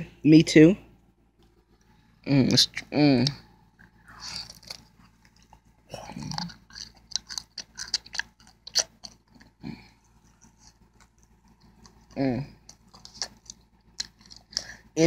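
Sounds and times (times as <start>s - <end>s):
wet chewing and bites: 3.8s - 14.8s.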